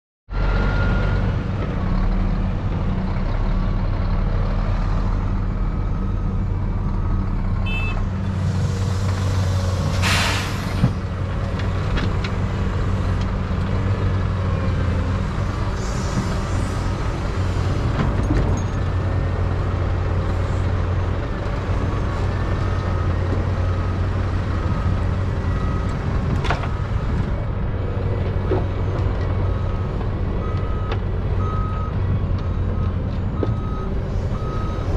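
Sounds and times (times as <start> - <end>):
diesel engines running: 0.3 - 34.9
earth loading into truck: 8.3 - 12.5
loud hiss of air: 8.6 - 10.8
reversing alarm beeping: 28.8 - 34.9.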